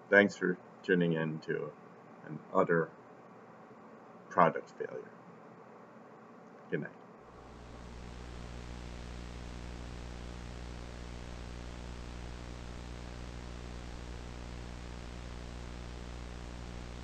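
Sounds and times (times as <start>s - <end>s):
low electrical hum: 0.0s - 17.0s
tv static hiss: 4.3s - 5.1s, 6.8s - 17.0s.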